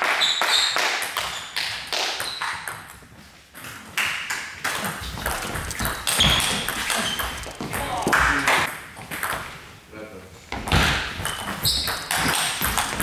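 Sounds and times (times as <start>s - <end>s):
table tennis ball hits: 3.6s - 9.5s, 10.6s - 13.0s.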